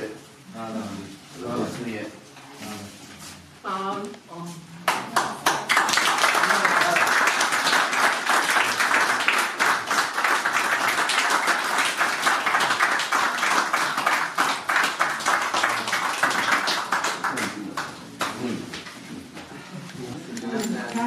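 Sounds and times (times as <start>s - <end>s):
crowd applauding: 4.9s - 18.6s.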